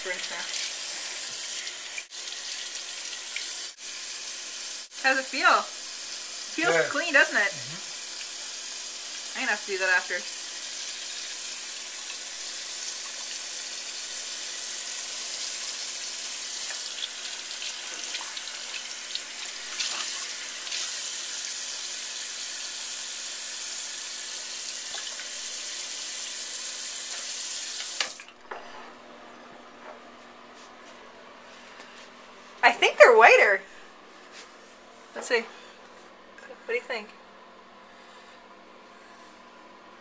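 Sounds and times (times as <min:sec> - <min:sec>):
faucet running into basin: 0:00.0 - 0:06.7, 0:07.7 - 0:28.3.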